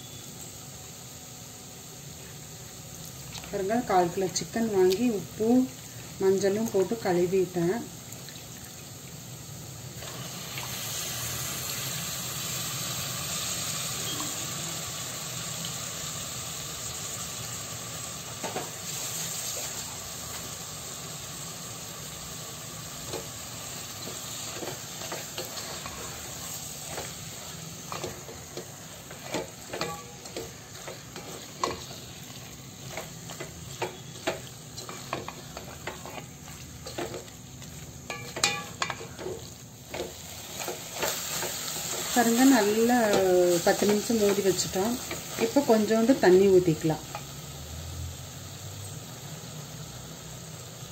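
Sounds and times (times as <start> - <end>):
chicken sizzling in hot oil: 0.0 - 50.9.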